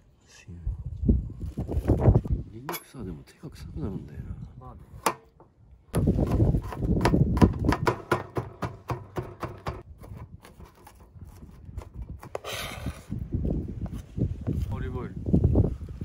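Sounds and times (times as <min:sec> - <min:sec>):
knife chopping on plastic board: 0:06.0 - 0:09.9.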